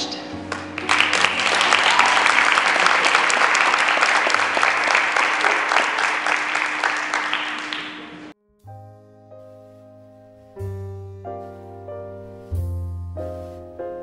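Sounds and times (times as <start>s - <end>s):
audience applauding: 0.5s - 8.3s.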